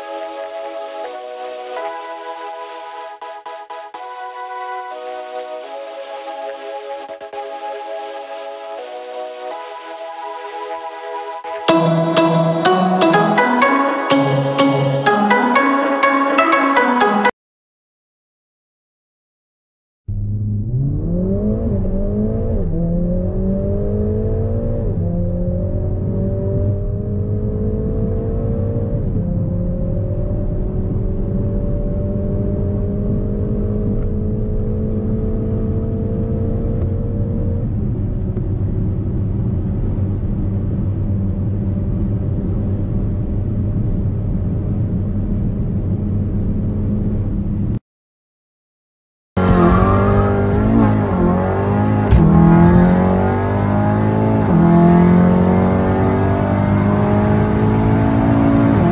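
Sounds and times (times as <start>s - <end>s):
car engine accelerating: 20.1s - 47.7s, 49.4s - 58.9s.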